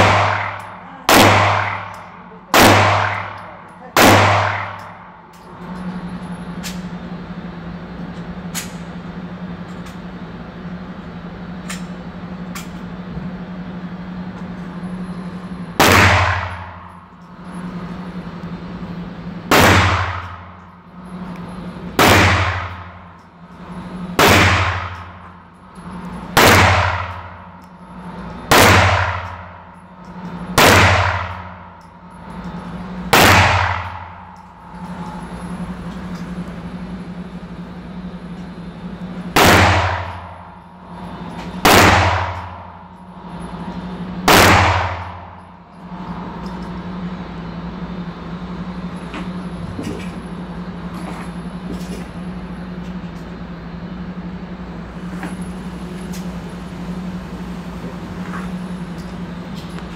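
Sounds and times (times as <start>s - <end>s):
gunshots echoing indoors: 0.0s - 5.2s, 15.8s - 17.0s, 19.4s - 21.2s, 22.0s - 23.1s, 23.8s - 25.4s, 26.3s - 29.7s, 30.5s - 31.9s, 32.8s - 35.0s, 39.3s - 40.6s, 41.6s - 43.0s, 44.2s - 45.4s
low hum: 0.0s - 59.9s.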